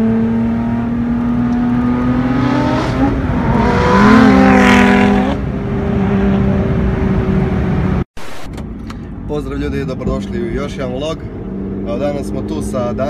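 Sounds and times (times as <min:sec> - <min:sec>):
sports car passing at speed: 0:00.0 - 0:08.0.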